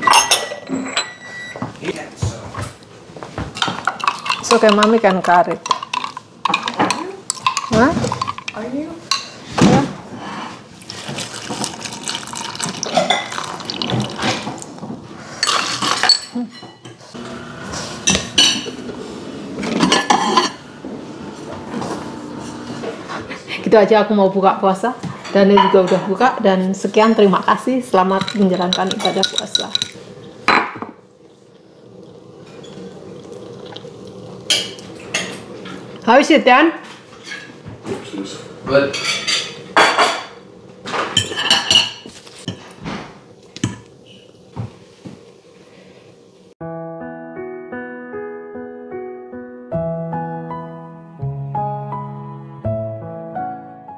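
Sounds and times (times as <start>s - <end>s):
dishes and spoon clattering: 0.0s - 1.6s, 3.5s - 9.8s, 12.4s - 13.5s, 15.4s - 17.0s, 18.0s - 18.9s, 19.6s - 20.6s, 25.2s - 26.3s, 28.1s - 31.0s, 38.8s - 42.7s.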